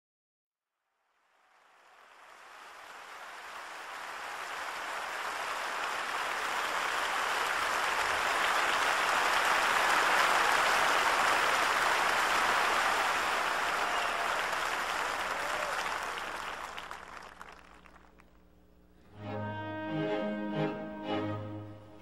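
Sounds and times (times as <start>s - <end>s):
audience applauding: 1.3s - 18.4s.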